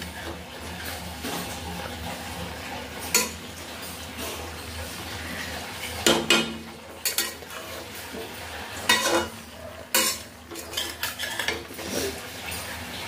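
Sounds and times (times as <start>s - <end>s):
metal spatula scraping a pan: 7.0s - 12.2s.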